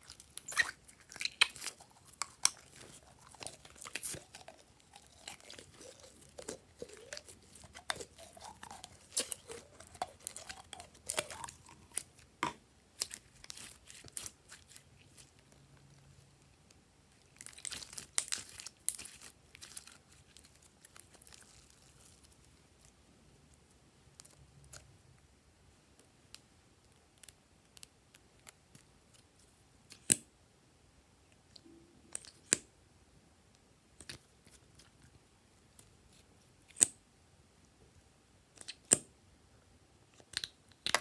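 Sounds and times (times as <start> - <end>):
crinkly plastic rustling: 0.0 - 12.2.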